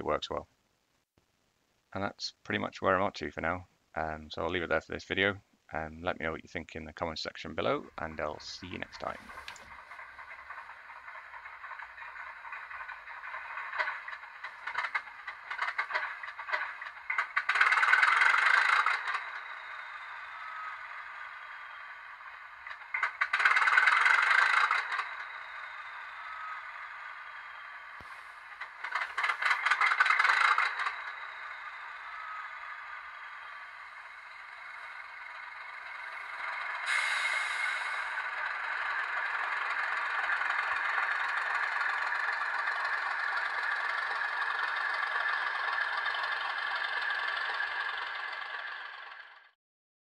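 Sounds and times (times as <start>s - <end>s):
model locomotive engine idling: 2.0s - 49.6s
clatter: 7.7s - 49.6s
loud hissing bursts: 36.8s - 38.4s.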